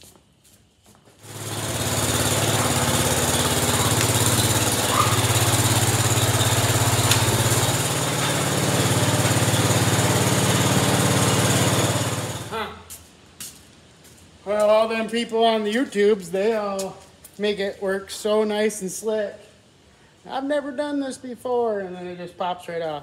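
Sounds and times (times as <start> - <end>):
small engine running under load: 1.2 - 12.7.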